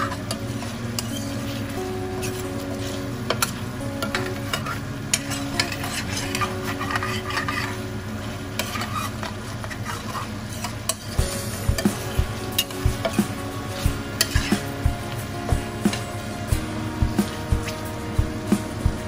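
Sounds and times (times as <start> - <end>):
metal spoon scraping a pan: 0.0 - 14.8
sauce sizzling and bubbling: 0.0 - 19.0.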